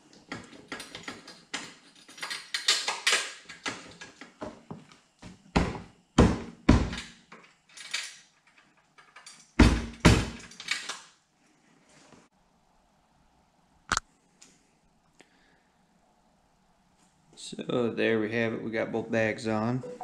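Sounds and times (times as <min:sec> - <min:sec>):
heavy knocks and thumps: 0:05.2 - 0:07.0.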